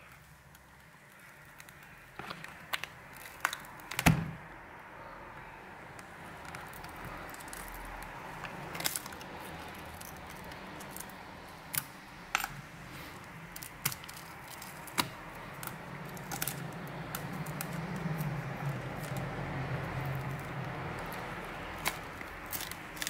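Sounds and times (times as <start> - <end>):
glass cracking and clicking: 2.6 - 4.0, 8.7 - 11.1, 13.5 - 17.8, 21.8 - 23.0.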